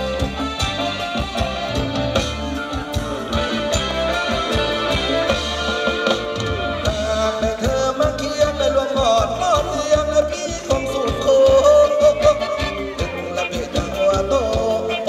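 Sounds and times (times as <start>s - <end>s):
drum beat: 0.0s - 15.0s
man singing: 6.8s - 15.0s.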